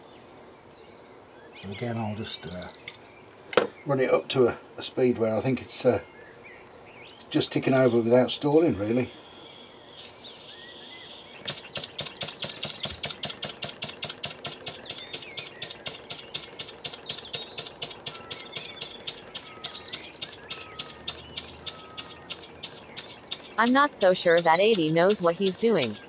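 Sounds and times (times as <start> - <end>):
model engine exhaust puffs: 11.4 - 26.0.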